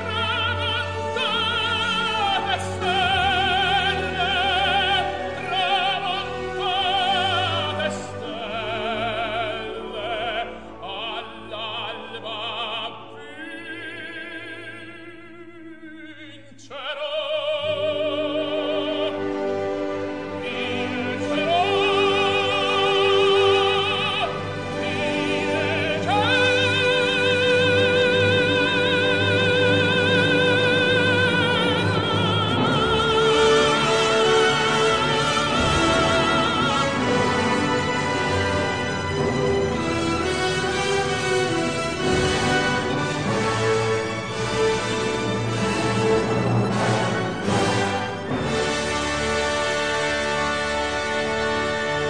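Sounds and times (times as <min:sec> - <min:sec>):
operatic singing with vibrato: 0:00.0 - 0:52.0
orchestral accompaniment: 0:00.0 - 0:52.0.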